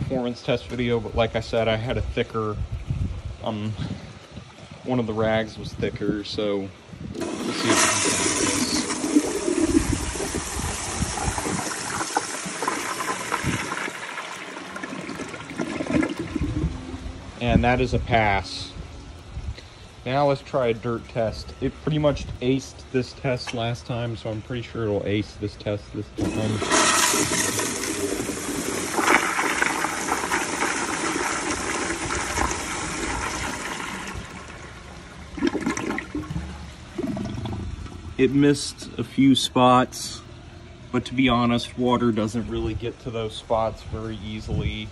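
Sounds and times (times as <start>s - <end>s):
toilet flushing water rushing: 7.2s - 17.0s, 26.2s - 38.0s
drain gurgling: 7.2s - 18.0s, 26.2s - 38.3s.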